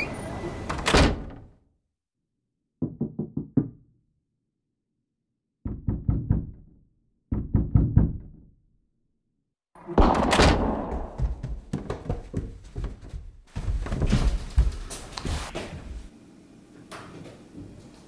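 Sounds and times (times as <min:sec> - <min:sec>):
knocking on a door: 0:02.8 - 0:03.8, 0:05.7 - 0:06.6, 0:07.3 - 0:08.4
loud thud: 0:10.0 - 0:11.8.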